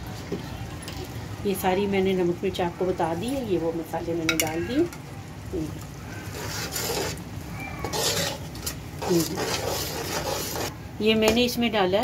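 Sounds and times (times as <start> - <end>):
metal spatula scraping a pot: 6.1 - 10.7.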